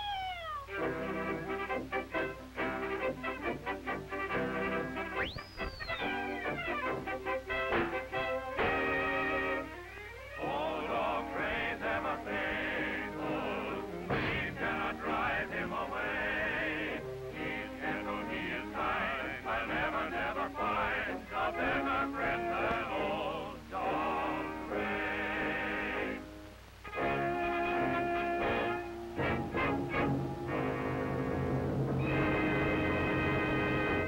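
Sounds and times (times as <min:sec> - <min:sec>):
cartoon orchestral music: 0:00.0 - 0:12.0, 0:26.9 - 0:34.0.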